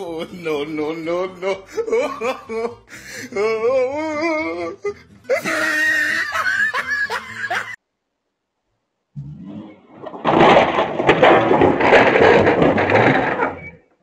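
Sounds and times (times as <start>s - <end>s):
people laughing: 0.0s - 3.1s, 5.3s - 7.8s
music: 0.0s - 7.8s.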